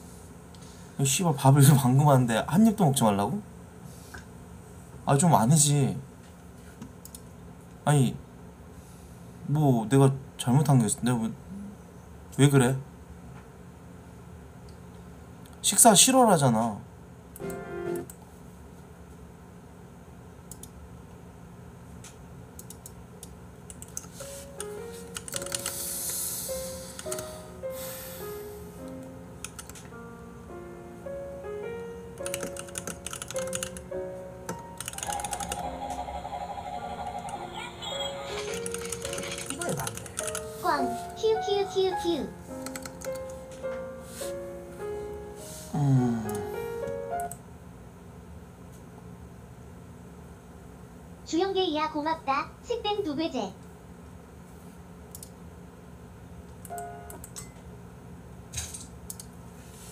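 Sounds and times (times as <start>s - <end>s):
soft keyboard music: 17.4s - 18.2s, 23.8s - 47.5s, 56.6s - 57.7s
soft clicks: 20.5s - 20.8s, 55.1s - 55.4s
rapid clicking: 32.2s - 33.9s
warbling tone: 35.0s - 38.6s.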